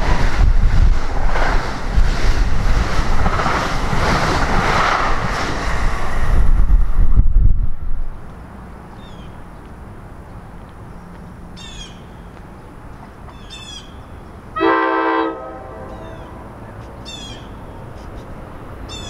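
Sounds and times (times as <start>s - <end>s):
bird chirping: 8.9s - 9.4s, 15.9s - 17.8s
train horn blast: 14.6s - 16.6s.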